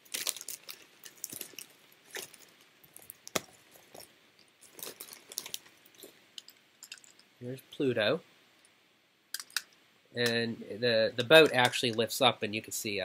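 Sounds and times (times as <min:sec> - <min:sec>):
plastic packaging crinkling: 0:00.0 - 0:07.2.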